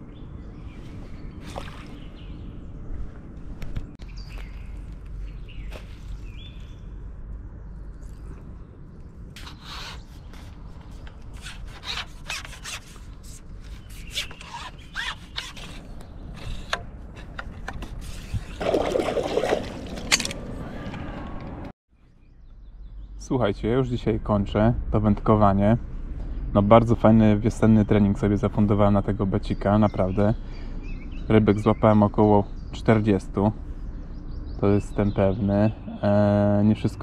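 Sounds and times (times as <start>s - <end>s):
steady low rumble: 0.0s - 9.4s.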